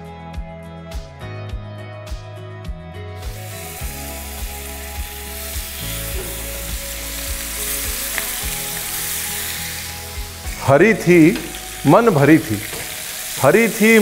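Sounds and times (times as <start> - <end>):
soft background music: 0.0 - 14.0
chicken sizzling in oil: 3.2 - 14.0.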